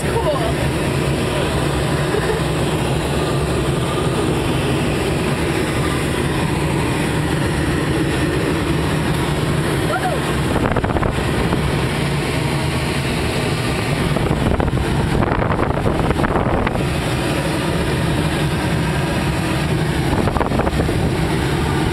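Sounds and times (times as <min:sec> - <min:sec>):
low even drone: 0:00.0 - 0:21.9
wind rushing in cockpit: 0:00.0 - 0:21.9.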